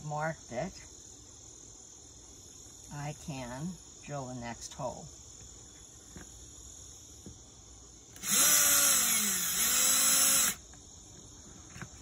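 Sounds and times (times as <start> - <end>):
cordless drill drilling: 8.2 - 10.6.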